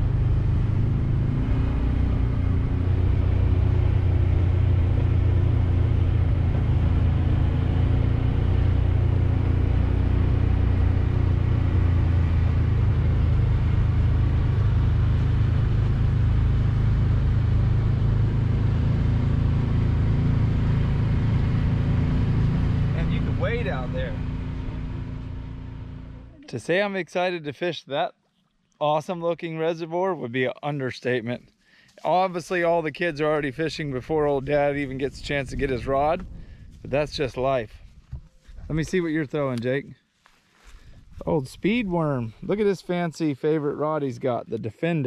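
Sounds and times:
utility vehicle engine running: 0.0s - 26.4s.

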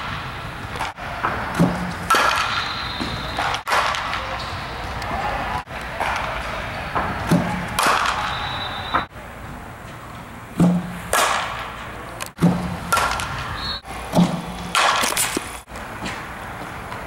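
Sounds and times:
bat hitting softball: 0.0s - 4.6s, 5.8s - 9.0s, 10.6s - 15.5s.

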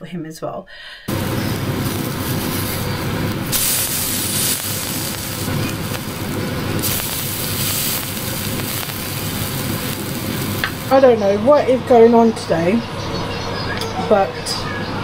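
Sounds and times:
patties sizzling in pan: 1.1s - 11.7s.

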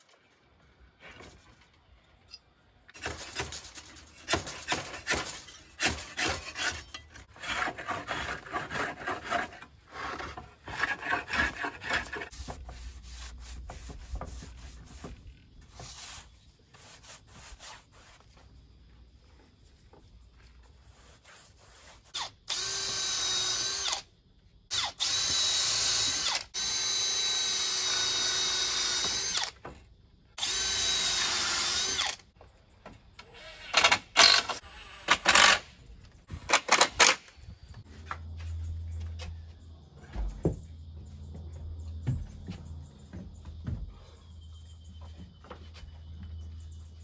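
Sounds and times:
cordless drill drilling into wood: 22.2s - 24.0s, 24.7s - 29.5s, 30.4s - 32.2s, 33.3s - 35.6s.

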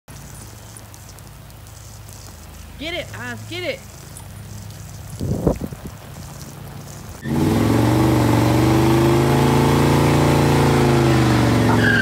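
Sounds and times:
car engine revving: 7.2s - 12.0s.

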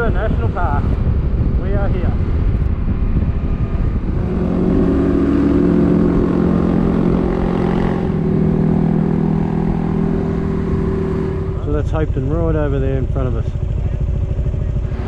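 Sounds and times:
motorcycle engine cruising: 0.0s - 15.0s
road noise: 0.0s - 15.0s
wind rumble: 0.0s - 15.0s.

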